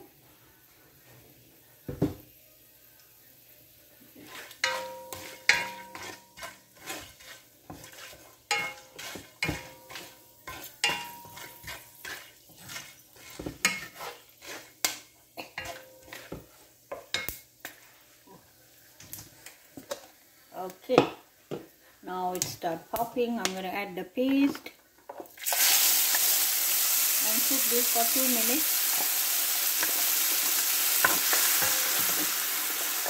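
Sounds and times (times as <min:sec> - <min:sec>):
spices frying in oil: 0:01.8 - 0:33.0
wooden spatula scraping pan: 0:04.1 - 0:15.0, 0:15.6 - 0:18.1.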